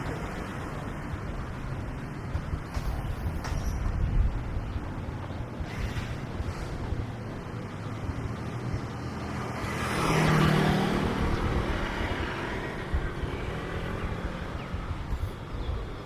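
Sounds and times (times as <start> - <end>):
vehicle passing close by: 5.6 - 15.3.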